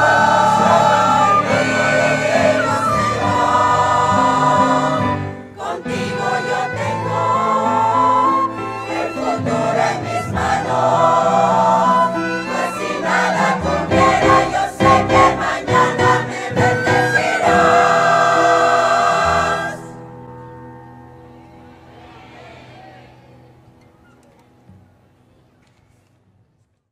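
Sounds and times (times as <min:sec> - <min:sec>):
choir singing a sacred song: 0:00.0 - 0:20.7.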